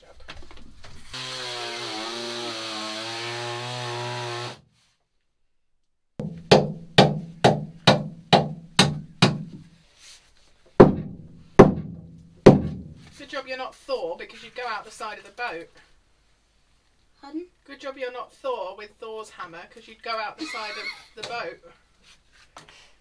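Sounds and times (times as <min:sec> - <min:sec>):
power tool buzzing: 0:01.1 - 0:04.6.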